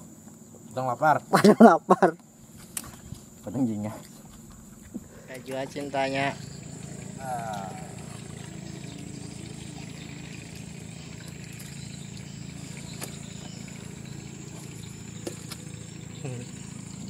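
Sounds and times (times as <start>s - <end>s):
low engine drone: 2.4s - 17.0s
high whine: 4.4s - 17.0s.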